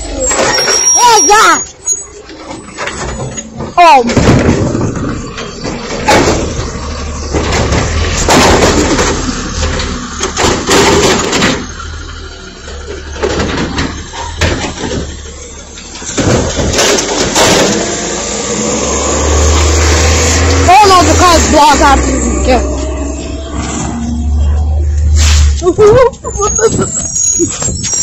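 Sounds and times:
garbage truck engine running: 0.0s - 28.0s
bin banging against truck: 2.5s - 12.0s, 13.0s - 15.3s, 16.0s - 18.6s.

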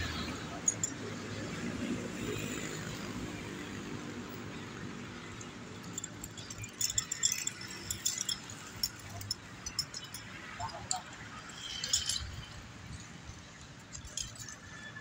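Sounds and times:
climbing hardware clinking: 0.5s - 1.1s, 5.2s - 13.0s, 13.7s - 15.0s.

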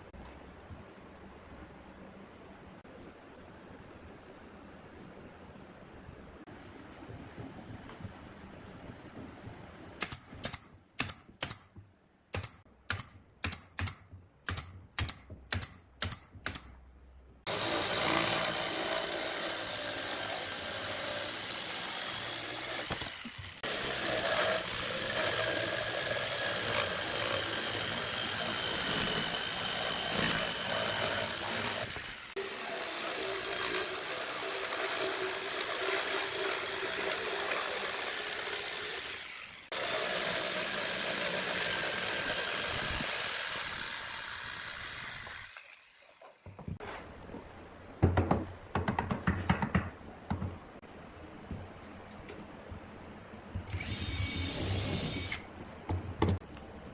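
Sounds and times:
nail gun shots: 10.0s - 11.7s, 12.3s - 16.7s
electric jigsaw cutting boards: 17.5s - 46.4s, 53.7s - 55.4s.

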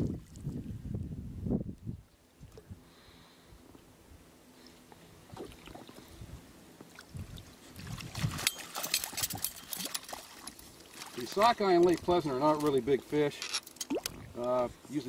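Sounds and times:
fish splashing at the surface: 7.0s - 11.4s.

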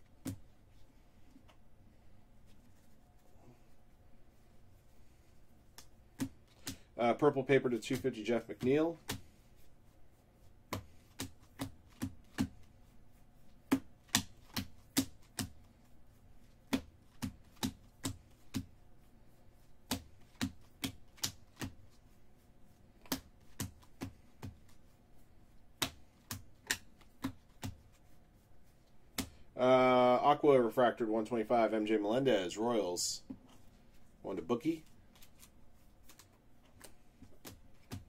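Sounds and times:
cards flipping with clicks: 25.8s - 27.9s, 35.1s - 38.0s.

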